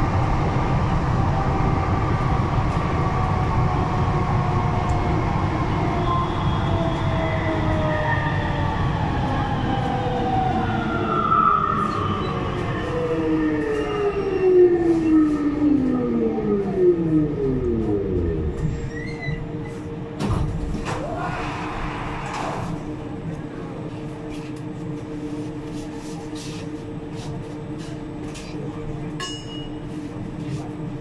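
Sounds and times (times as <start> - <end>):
metro train rumbling in tunnel: 0.0 - 31.0.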